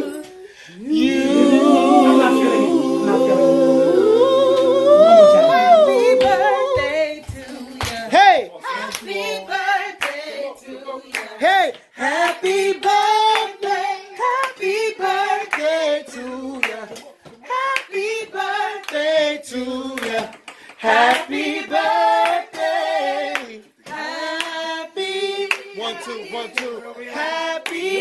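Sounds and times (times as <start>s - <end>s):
group singing together: 0.0s - 28.0s
hand clapping: 6.0s - 8.2s, 11.1s - 13.5s, 16.6s - 18.0s, 18.8s - 19.0s, 20.0s - 21.4s, 22.2s - 24.6s, 27.6s - 28.0s.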